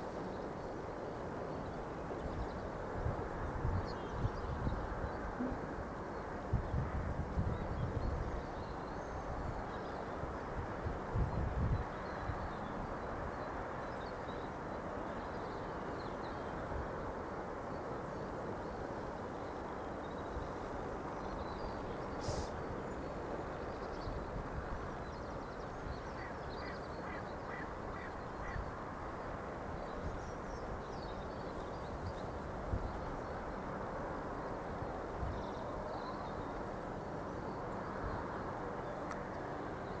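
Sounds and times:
steady outdoor rushing noise: 0:00.0 - 0:40.0
wind buffeting microphone: 0:02.0 - 0:13.4, 0:20.4 - 0:36.4.

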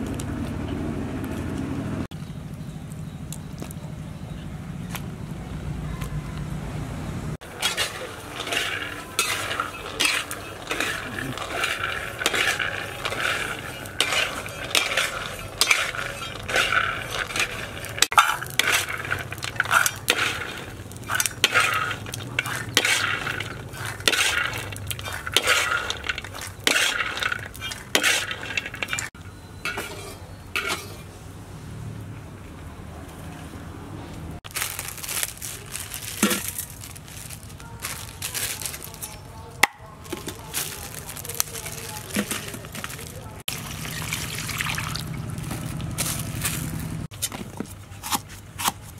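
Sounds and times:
nuts rattling and scraping in metal pot: 0:07.4 - 0:31.1, 0:34.5 - 0:47.6.

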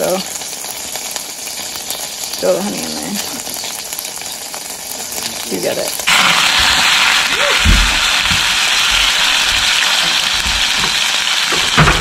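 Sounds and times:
bread sizzling in a pan: 0:00.0 - 0:12.0
dull knocks of pan or utensil: 0:07.6 - 0:12.0.

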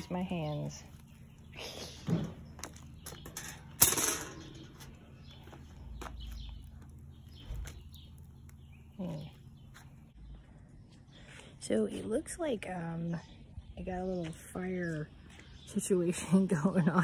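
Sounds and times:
metal grill parts knocking: 0:02.0 - 0:04.9
sharp metal clank: 0:03.4 - 0:04.6.

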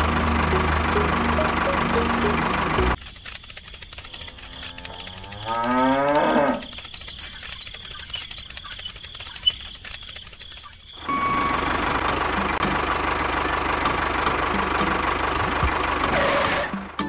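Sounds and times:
toy tractor motor whining: 0:02.2 - 0:11.2
light clicking and rattling: 0:03.0 - 0:11.0.

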